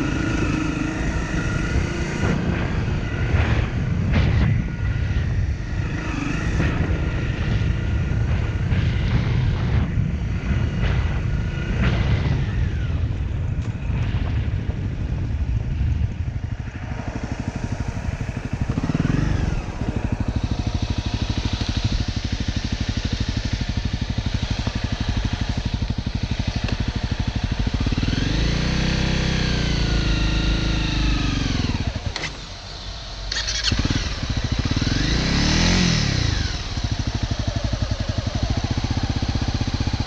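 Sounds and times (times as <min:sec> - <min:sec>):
motorcycle engine revving and idling: 0:00.0 - 0:40.0.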